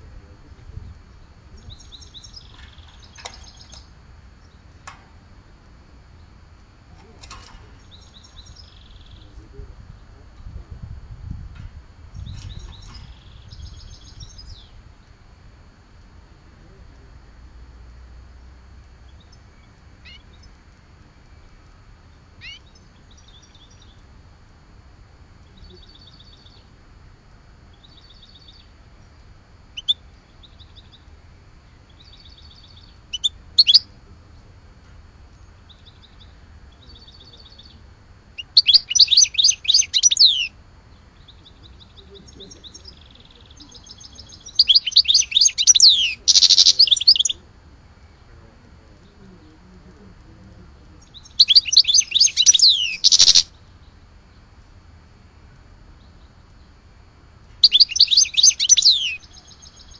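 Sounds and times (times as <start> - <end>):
songbird trilling: 1.1 - 4.9, 7.1 - 10.2, 12.1 - 14.9, 19.0 - 20.6, 22.3 - 24.1, 25.4 - 26.7, 27.7 - 28.8, 29.7 - 31.1, 31.7 - 34.0, 35.3 - 47.4, 50.9 - 54.0, 57.6 - 59.9.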